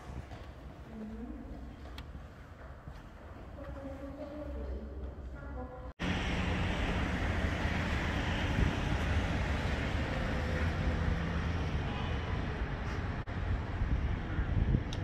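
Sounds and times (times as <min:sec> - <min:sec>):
road traffic: 0:05.8 - 0:15.0.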